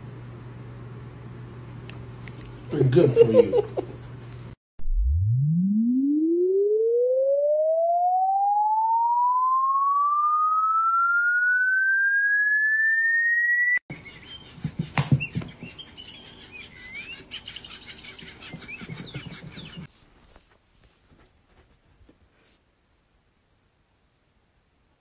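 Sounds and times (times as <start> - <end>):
rising electronic tone: 4.8 - 13.8.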